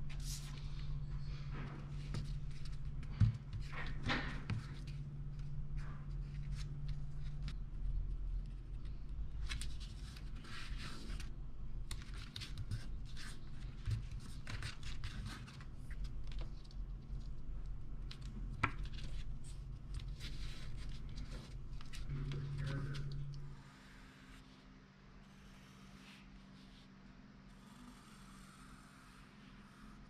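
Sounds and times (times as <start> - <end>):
steady low hum: 0.0 - 30.0
paper rustling and scratching: 0.1 - 11.3, 11.9 - 17.5, 18.1 - 23.4.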